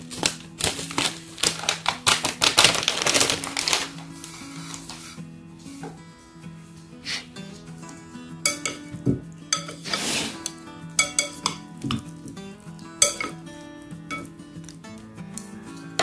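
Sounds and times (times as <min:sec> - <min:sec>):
soft background music: 0:00.0 - 0:16.0
chopsticks clinking ceramic bowl: 0:08.4 - 0:12.2, 0:13.0 - 0:14.4
scraping rustle: 0:09.6 - 0:10.6.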